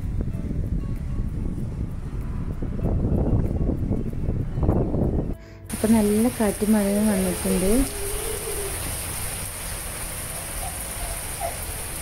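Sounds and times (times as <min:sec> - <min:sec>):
gusty wind on microphone: 0:00.0 - 0:05.8.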